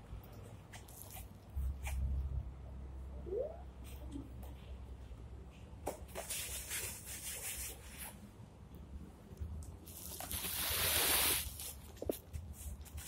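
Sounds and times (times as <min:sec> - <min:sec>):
sand scraping hiss: 0:10.0 - 0:11.8.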